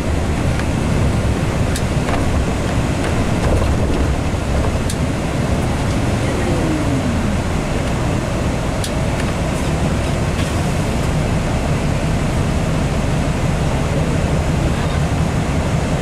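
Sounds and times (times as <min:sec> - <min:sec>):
tyre and road rumble: 0:00.0 - 0:12.0
bus engine running: 0:00.0 - 0:16.0.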